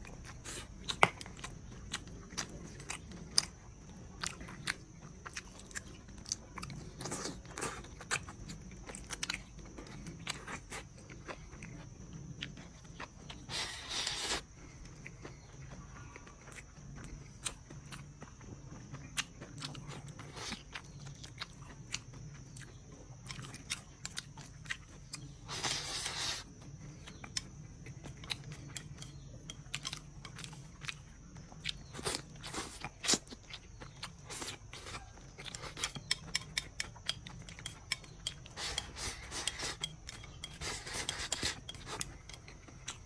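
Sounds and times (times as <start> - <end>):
slurping: 13.4 - 14.5, 25.5 - 26.5, 38.5 - 43.0.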